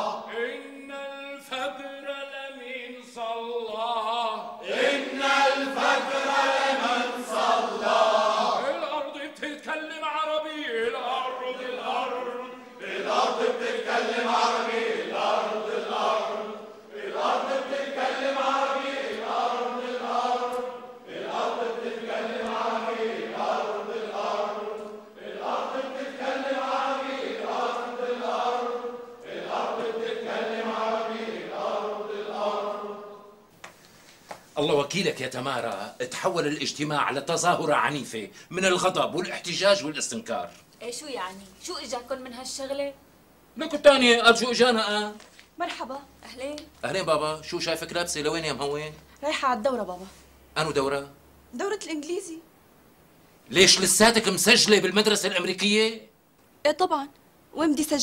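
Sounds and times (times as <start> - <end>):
crowd chanting: 0.0 - 2.1, 4.4 - 9.0, 10.6 - 33.5.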